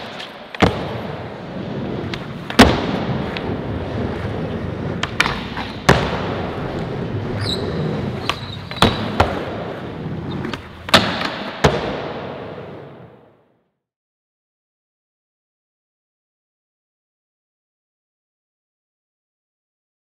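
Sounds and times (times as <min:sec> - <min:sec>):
skateboard clacks: 0:00.0 - 0:13.3
skateboard wheels rolling on ramps: 0:00.0 - 0:13.5.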